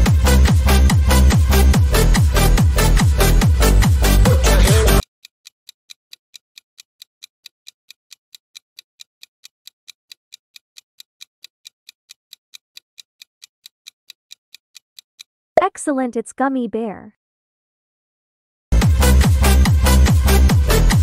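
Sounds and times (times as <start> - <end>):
music: 0.0 - 5.0, 18.7 - 21.0
countdown clock ticking: 0.0 - 16.5.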